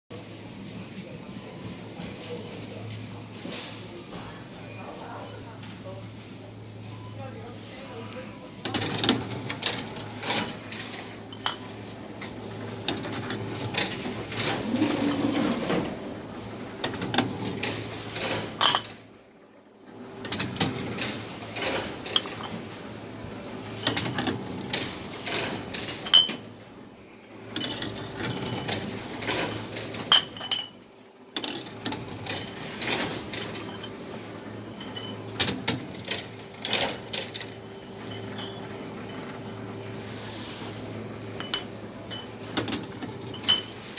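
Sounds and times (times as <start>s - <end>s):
glass bottles clinking: 11.2s - 11.9s, 18.5s - 19.0s, 22.0s - 22.7s, 25.8s - 26.5s, 27.5s - 31.7s, 32.3s - 34.0s, 34.7s - 35.6s, 38.0s - 39.2s, 41.3s - 43.9s.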